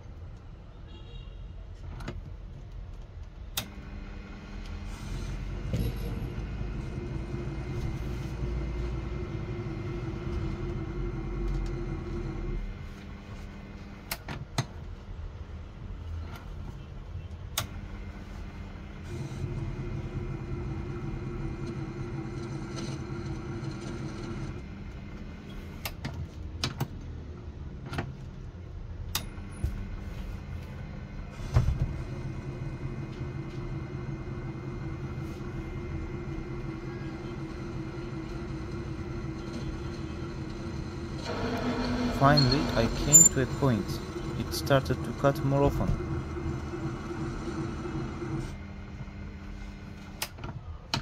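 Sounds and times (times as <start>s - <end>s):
lathe motor humming: 3.6s - 14.1s, 17.6s - 25.8s, 29.3s - 50.3s.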